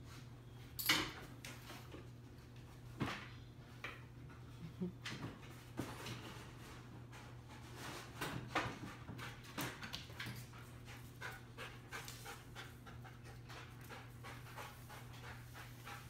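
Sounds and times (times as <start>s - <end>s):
dog panting rapidly: 8.7s - 16.0s.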